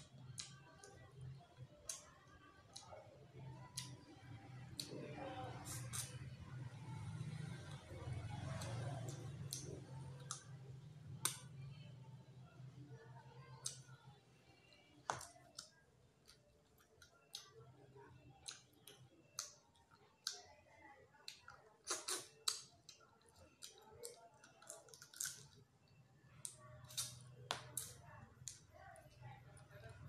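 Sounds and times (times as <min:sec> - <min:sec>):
wet lip smacks while eating: 0:21.2 - 0:23.0, 0:26.4 - 0:28.6.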